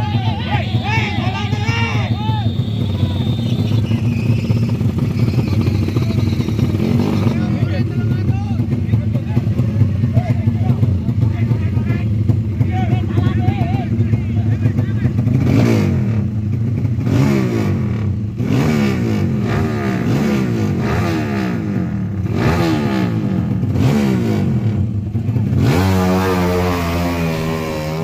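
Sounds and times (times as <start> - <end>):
motorcycle engines revving: 0.0 - 28.0.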